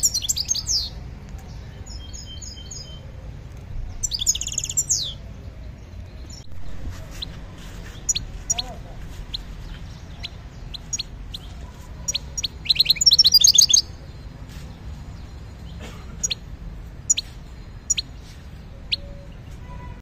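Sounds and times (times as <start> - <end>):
bird chirping: 0.0 - 20.0
bird twittering: 3.9 - 5.2, 7.8 - 14.1, 15.3 - 19.4.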